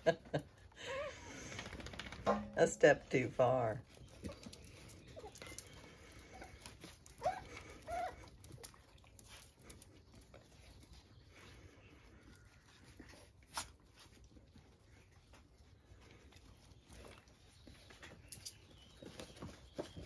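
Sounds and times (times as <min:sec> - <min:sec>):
paws scuffling on doormat: 0:03.3 - 0:20.0
puppy yelps: 0:07.2 - 0:08.3.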